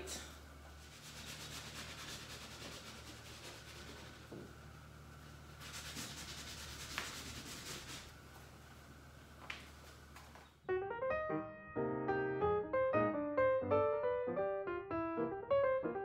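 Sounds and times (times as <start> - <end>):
paint rubbing on canvas: 0.7 - 4.6, 5.2 - 8.3.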